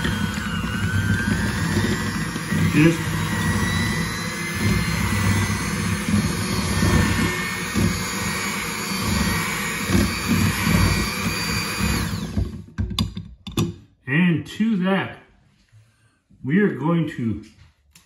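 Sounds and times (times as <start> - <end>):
electric hand mixer whining: 0.0 - 12.8.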